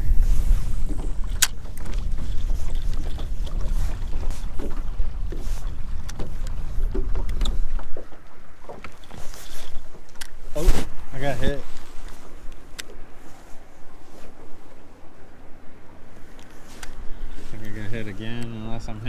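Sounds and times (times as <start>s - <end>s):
fabric rubbing on microphone: 0.0s - 1.2s, 9.1s - 12.4s
wind buffeting microphone: 0.0s - 19.0s.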